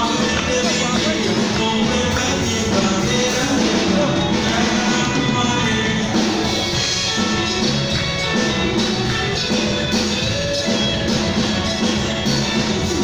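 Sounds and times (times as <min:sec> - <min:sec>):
drum kit beat: 0:00.0 - 0:13.0
electric and acoustic guitars: 0:00.0 - 0:13.0
keyboard: 0:00.0 - 0:13.0
live band playing: 0:00.0 - 0:13.0.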